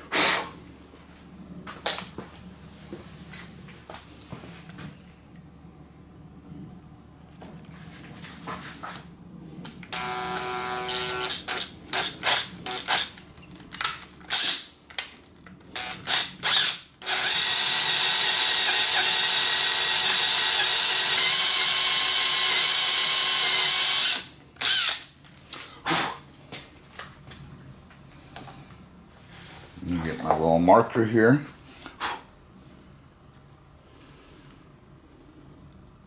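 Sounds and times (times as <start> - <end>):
electric drill boring into metal: 9.9 - 13.2, 14.3 - 14.6, 15.8 - 25.1.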